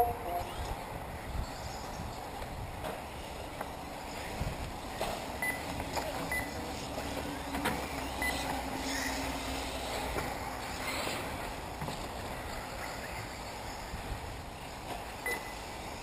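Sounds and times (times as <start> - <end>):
rc cars tyre and motor noise: 0.4 - 16.0.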